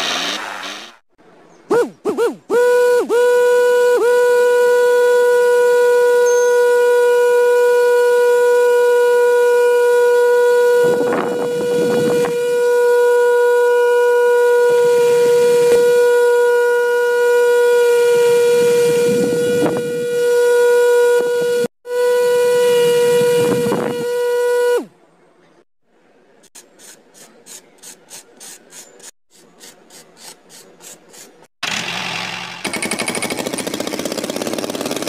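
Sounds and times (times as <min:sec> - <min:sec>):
small electric motor whining: 0:01.7 - 0:24.9.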